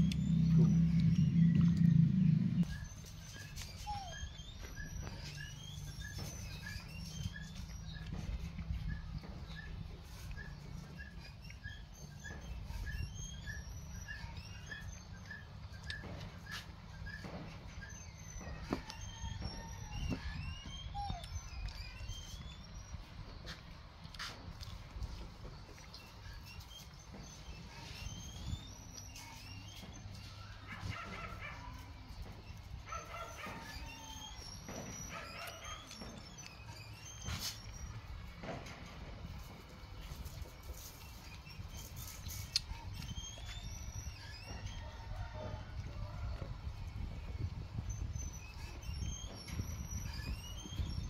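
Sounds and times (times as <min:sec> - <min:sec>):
bird chirps: 0:00.0 - 0:23.1
animal whimpering and yipping: 0:00.0 - 0:23.3, 0:26.0 - 0:51.0.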